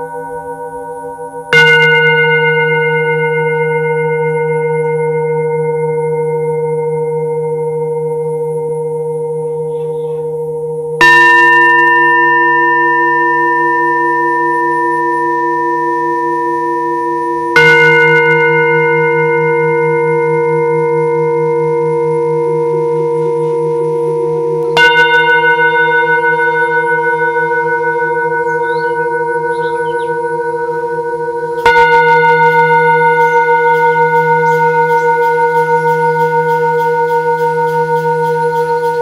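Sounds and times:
singing bowls ringing: 0.0 - 39.0
wavering low hum: 0.0 - 39.0.

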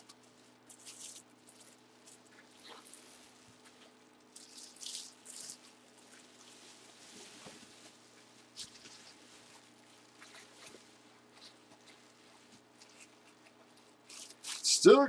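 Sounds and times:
bubble wrap crinkling: 0.0 - 14.7.

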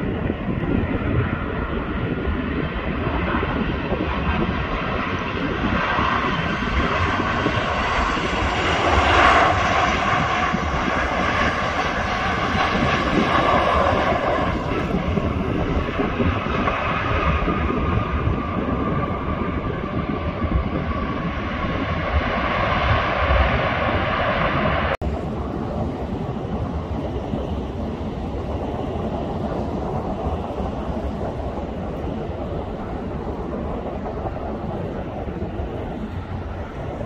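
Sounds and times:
jet airliner engines running: 0.0 - 37.0.

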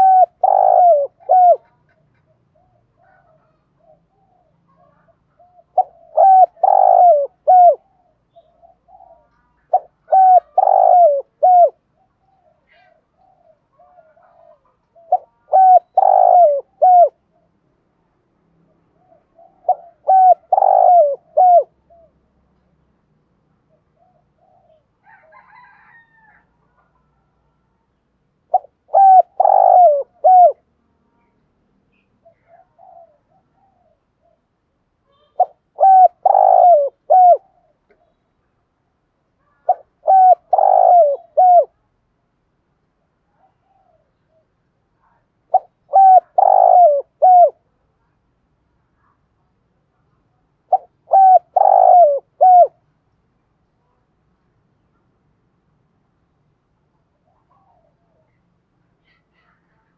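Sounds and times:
dove cooing: 0.0 - 17.6, 18.9 - 22.4, 23.6 - 30.7, 31.9 - 34.5, 35.1 - 38.2, 39.4 - 41.8, 43.3 - 47.7, 50.7 - 52.8, 57.1 - 58.4.

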